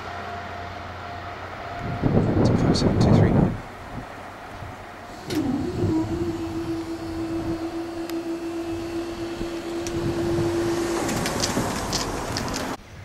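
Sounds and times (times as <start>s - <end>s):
barrier motor humming: 3.8s - 12.8s.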